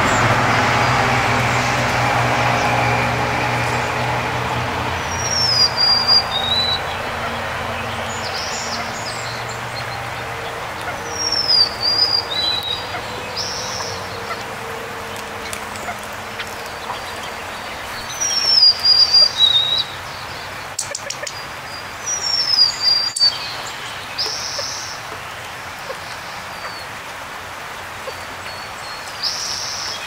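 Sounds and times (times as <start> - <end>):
low traffic hum: 0.0 - 30.0
songbird whistling: 5.2 - 6.8, 18.0 - 20.0.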